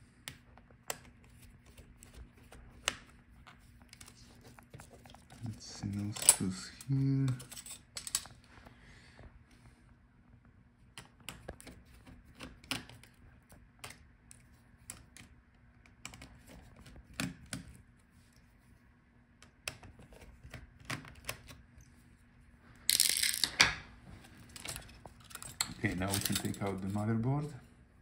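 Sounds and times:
fingers clicking laptop parts: 0.2s - 6.4s, 10.9s - 17.8s, 19.4s - 21.6s.

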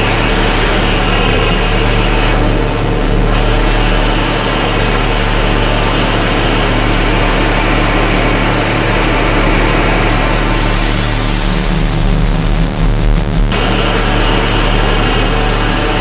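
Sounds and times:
distorted synthesizer noise: 0.0s - 16.0s
steady low hum: 0.0s - 16.0s.

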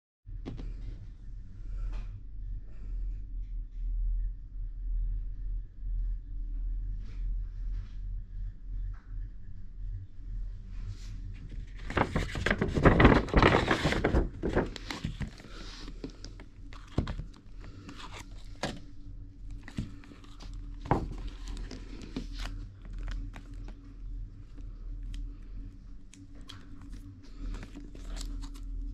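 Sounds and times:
paper bag rustling: 11.4s - 18.8s, 19.5s - 23.6s.

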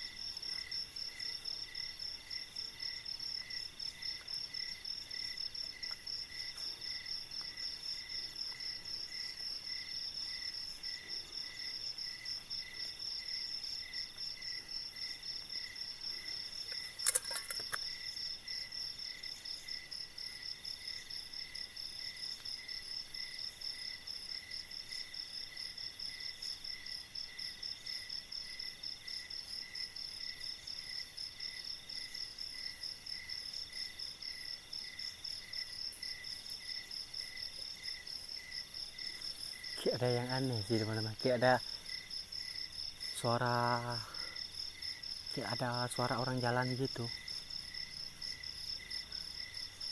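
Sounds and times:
crickets trilling: 0.0s - 49.9s
sharp click: 16.7s - 17.8s.

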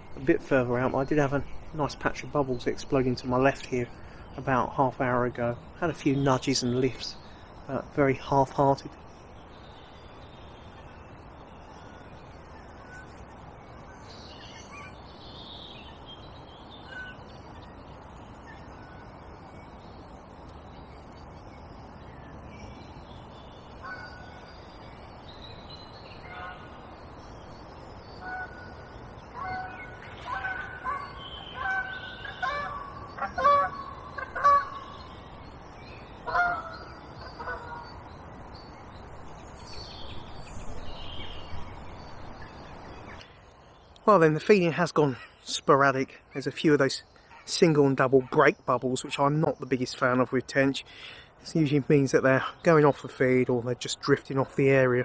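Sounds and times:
small birds chirping: 0.0s - 55.0s
waterfowl calling: 10.1s - 17.4s, 23.5s - 24.8s, 26.1s - 27.0s, 28.0s - 35.3s, 36.0s - 38.1s.

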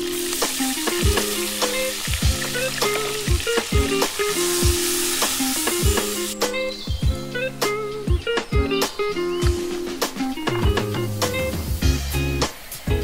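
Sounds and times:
butter sizzling in a wok: 0.0s - 6.4s, 9.5s - 13.0s
background music with steady beat: 0.0s - 13.0s.

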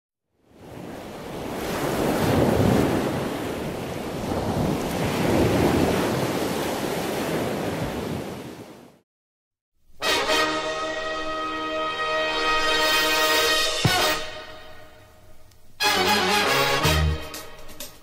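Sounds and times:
ocean surf breaking: 0.5s - 9.0s
theme music: 10.0s - 15.1s, 15.8s - 18.0s.

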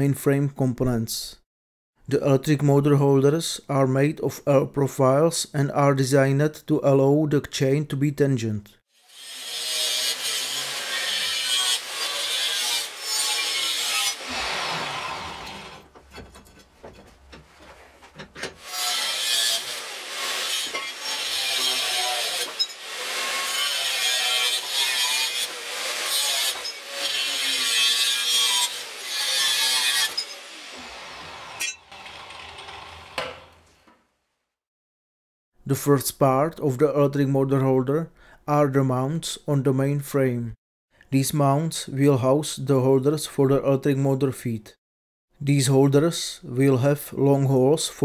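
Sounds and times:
angle grinder cutting steel: 9.0s - 15.9s, 18.6s - 33.6s.

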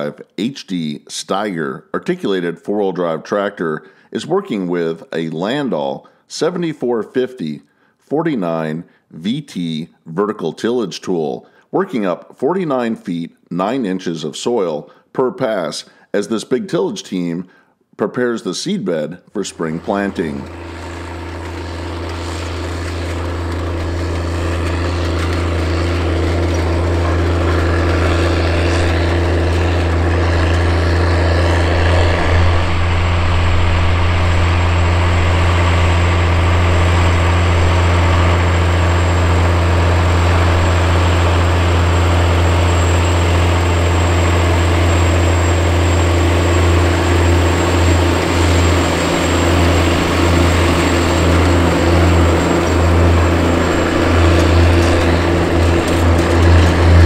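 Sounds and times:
tractor diesel engine under load: 19.5s - 57.0s.

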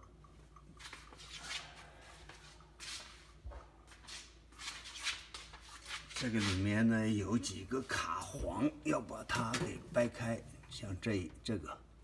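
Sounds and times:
rustling and scraping of handling: 0.8s - 7.0s.

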